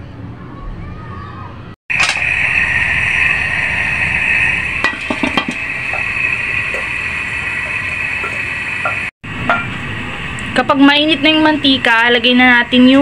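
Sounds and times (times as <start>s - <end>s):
gas burner hissing: 1.9s - 13.0s.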